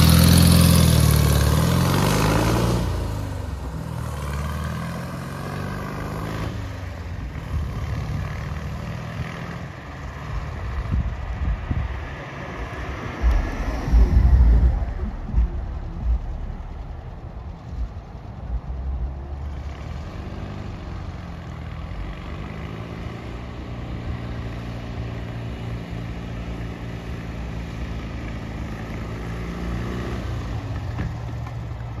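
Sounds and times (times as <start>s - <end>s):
wind buffeting microphone: 10.4s - 19.2s
van engine running: 12.8s - 32.0s.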